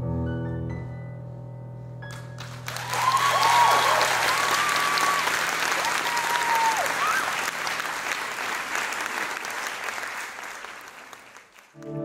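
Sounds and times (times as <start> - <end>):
audience applauding: 2.1 - 12.0.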